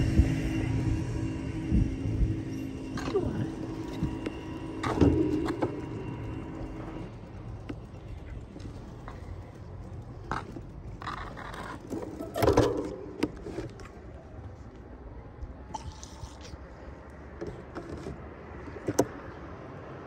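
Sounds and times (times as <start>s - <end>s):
street background: 0.0s - 20.0s
knocks and scrapes: 2.7s - 14.0s, 17.4s - 19.2s.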